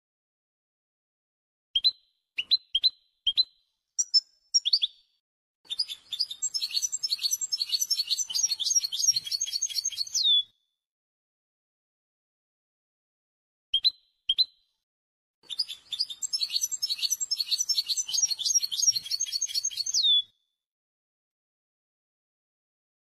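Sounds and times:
bird twittering song: 1.8s - 10.5s, 13.8s - 14.6s, 15.4s - 20.3s.

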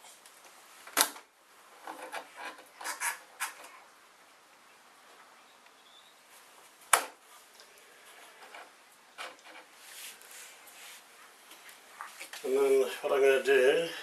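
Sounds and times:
soft handling noise: 6.3s - 13.8s.

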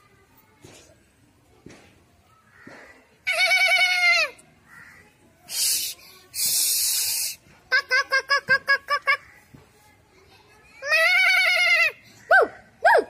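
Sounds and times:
snake hissing: 5.5s - 7.4s.

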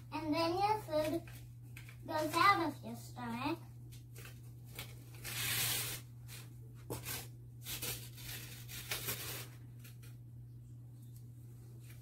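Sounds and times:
steady low hum: 0.0s - 12.0s
ribbon scraping against cardboard: 5.2s - 9.6s.

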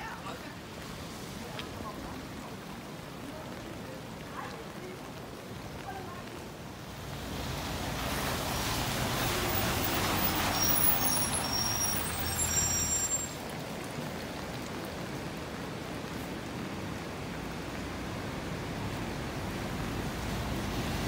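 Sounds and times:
tyres hissing on wet road: 0.0s - 21.0s
bus engine passing: 7.1s - 13.1s
high-pitched squeaks: 10.5s - 13.4s.

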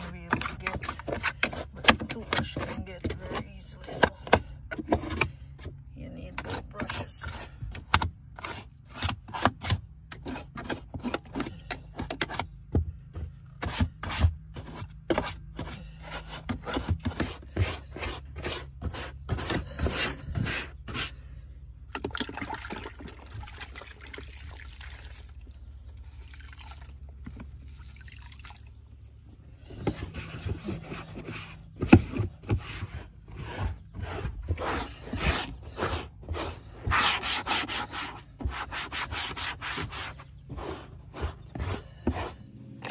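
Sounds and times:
low steady hum: 0.0s - 42.9s
brush scrubbing carpet: 32.4s - 42.9s.

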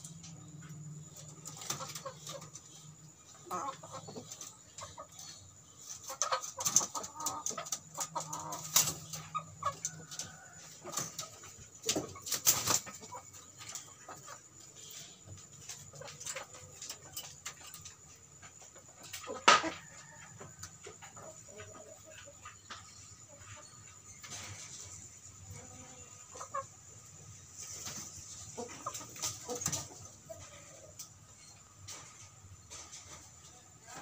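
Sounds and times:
chickens clucking: 0.0s - 34.0s.

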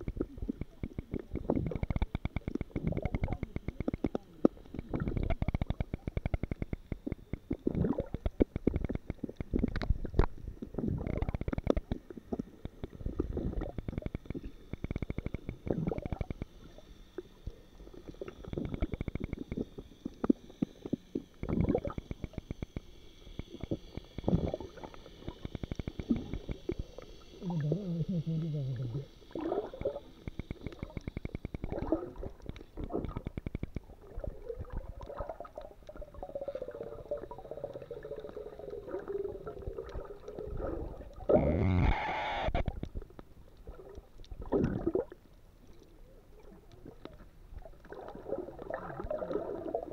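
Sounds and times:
underwater crackling and clicking: 0.0s - 49.9s
water gurgling and bubbles: 0.0s - 49.9s
low wavering tone: 15.3s - 31.0s.

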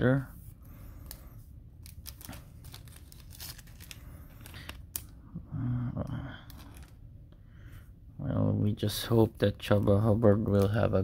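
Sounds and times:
plastic sleeve crinkling: 1.8s - 5.1s.

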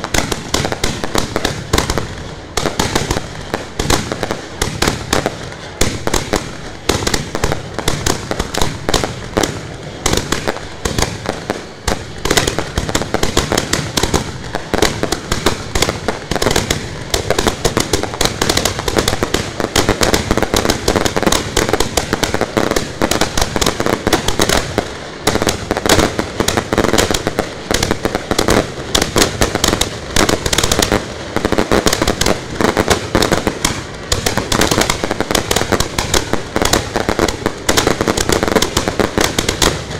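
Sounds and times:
fireworks popping and banging: 0.0s - 39.9s.

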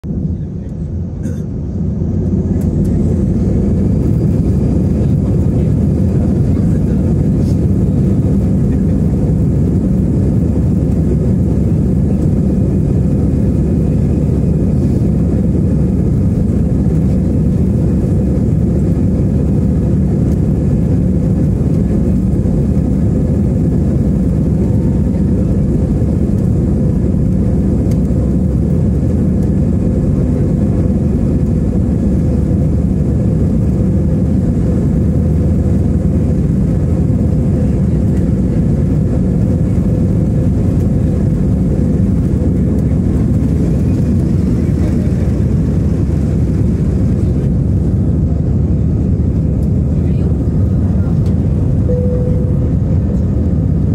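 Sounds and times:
faint engine whine: 0.0s - 53.9s
jet engines roaring at takeoff: 0.0s - 53.9s.

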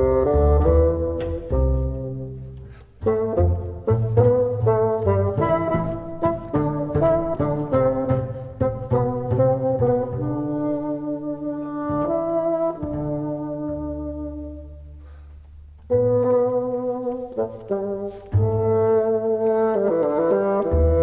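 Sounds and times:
bassoon held notes: 0.0s - 21.0s
tango quartet playing: 0.0s - 21.0s.

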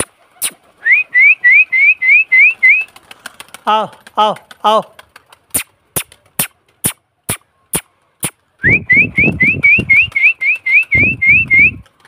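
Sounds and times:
short rising whistles: 0.8s - 2.9s, 8.6s - 11.8s.

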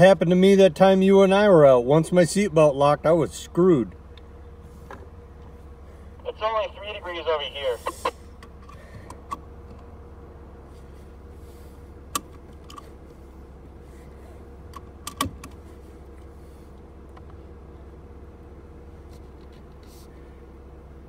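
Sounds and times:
car engine drone from inside: 0.0s - 21.0s.

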